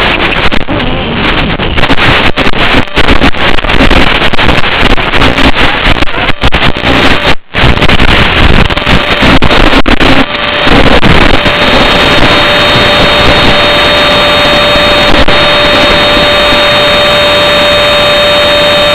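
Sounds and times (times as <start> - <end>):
video link static hiss: 0.0 - 18.9
steady high tone: 8.9 - 18.9.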